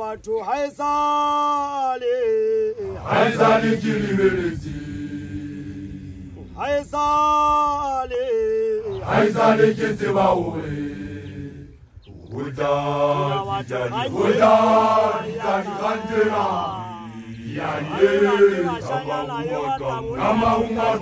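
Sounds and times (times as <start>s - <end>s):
man chanting: 0.0s - 4.0s, 6.4s - 9.1s, 12.3s - 21.0s.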